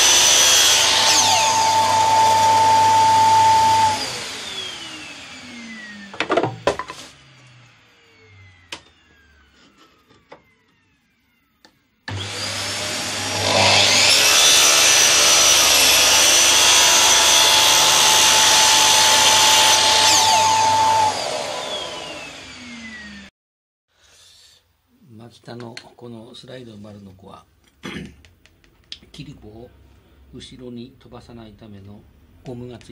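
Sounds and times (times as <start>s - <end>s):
miter saw whining: 0.0s - 6.2s, 7.1s - 23.3s
dust collector running: 0.0s - 9.4s, 12.1s - 23.2s.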